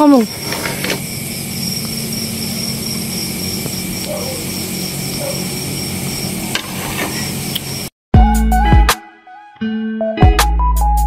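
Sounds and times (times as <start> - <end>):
insect chirping: 0.0 - 7.9
pan hissing on gas stove: 0.1 - 7.9.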